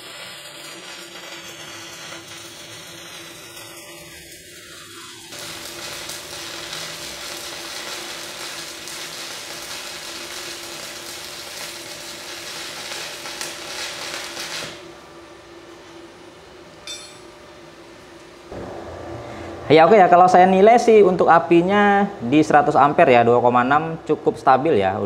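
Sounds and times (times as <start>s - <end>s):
welding arc crackling: 0.0s - 15.0s.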